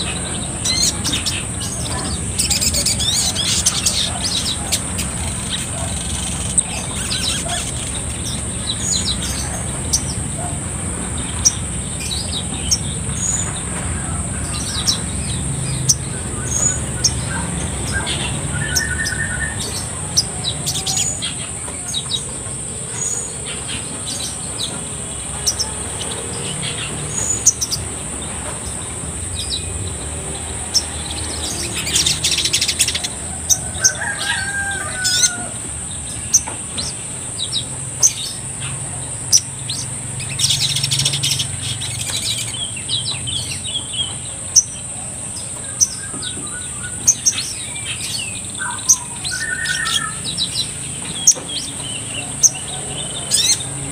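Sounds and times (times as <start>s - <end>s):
bird high chirps and trill: 11.2s - 53.9s.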